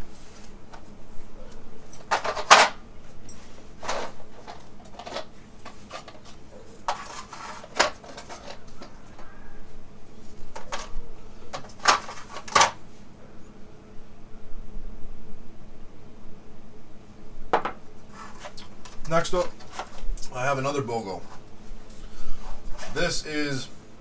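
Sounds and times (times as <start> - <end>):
plastic cases clattering on wood: 2.0 - 2.8, 3.8 - 9.3, 10.6 - 12.8
scuffling rustle: 3.0 - 9.3, 21.2 - 23.2.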